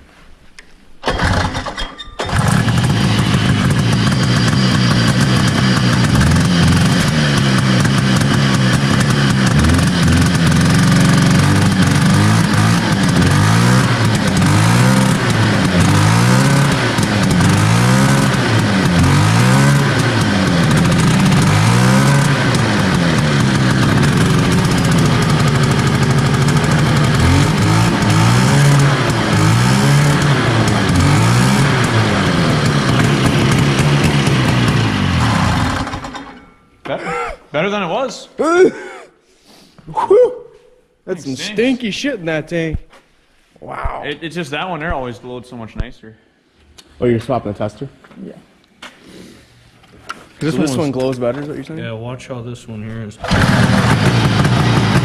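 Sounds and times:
two-stroke snowmobile engine revving: 1.0 - 36.4, 50.4 - 51.2, 53.2 - 55.0.

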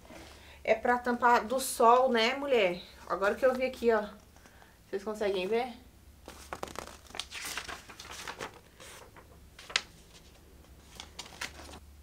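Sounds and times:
pages turned: 6.2 - 11.8
paper rustling: 6.2 - 11.8.

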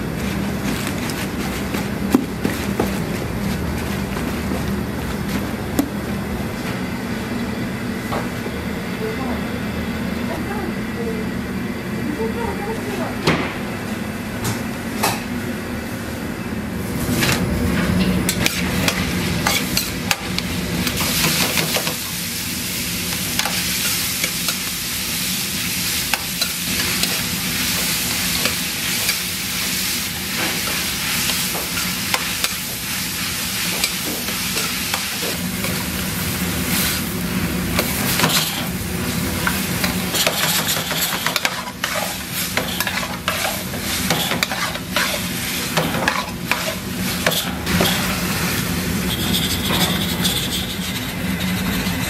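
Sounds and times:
vegetables sizzling in a pan: 18.5 - 48.9
spatula scraping a pan: 39.8 - 48.1, 49.0 - 52.0.

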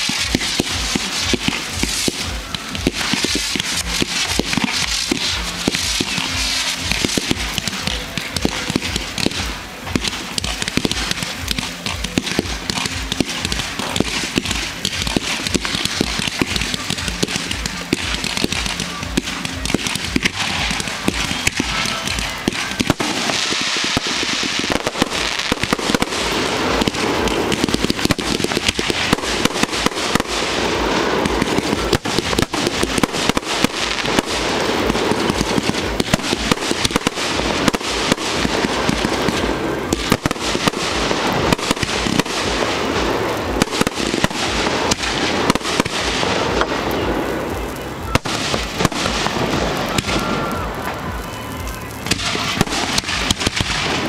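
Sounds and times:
fireworks bursting and crackling: 0.0 - 54.0.

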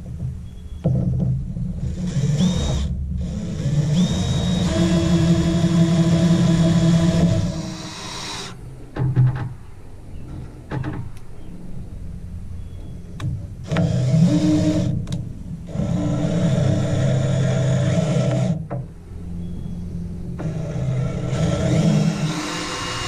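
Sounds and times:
cordless drill driving screws: 1.9 - 8.6, 20.4 - 23.0.

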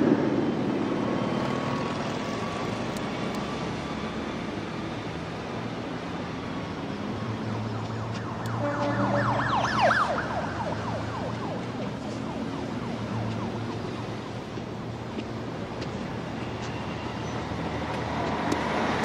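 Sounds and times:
city traffic noise: 0.0 - 19.0
siren yelping: 7.6 - 14.5.

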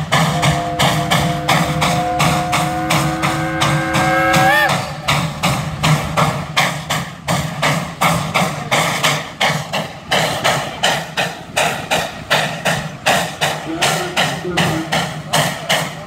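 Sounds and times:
low steady drone: 0.0 - 5.9
steam engine exhaust chuffing: 0.0 - 16.0.

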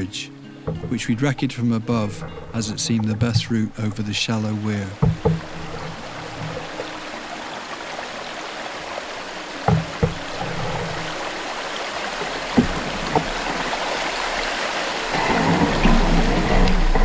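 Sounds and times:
river water rushing: 0.0 - 17.0
short knocks: 0.6 - 7.1, 9.6 - 11.3.

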